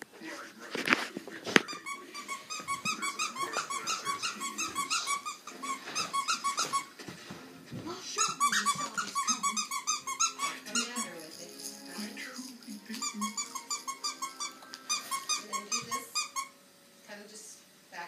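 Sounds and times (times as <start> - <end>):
squeaky dog toy squeaking: 1.6 - 7.0, 8.1 - 11.4, 12.9 - 16.6.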